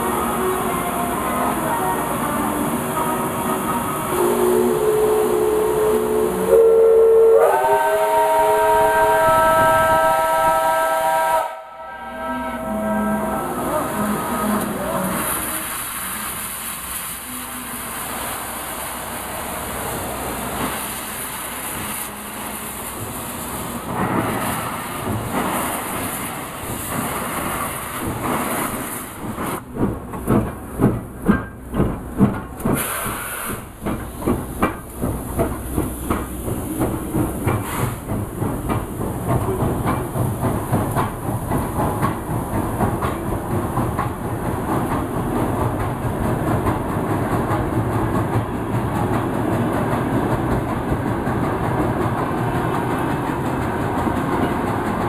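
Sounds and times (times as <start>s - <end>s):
steam locomotive exhaust chuffs: 4.1s - 52.1s
steam hissing: 12.8s - 30.0s, 32.2s - 45.6s
wheels clattering on rails: 18.9s - 55.0s.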